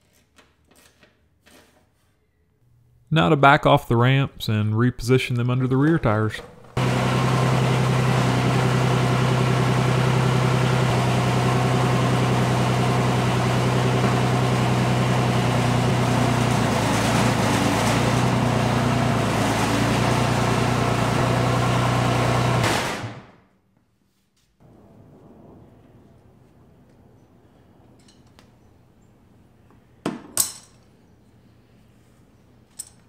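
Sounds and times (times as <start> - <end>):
diesel tractor idling: 5.8 - 23.1.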